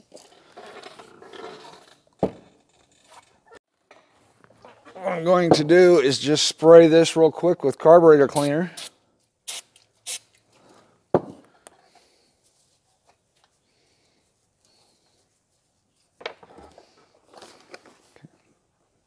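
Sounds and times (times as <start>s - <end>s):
aerosol can spraying: 9.5s - 10.3s
knock on wooden workbench: 11.1s - 11.4s.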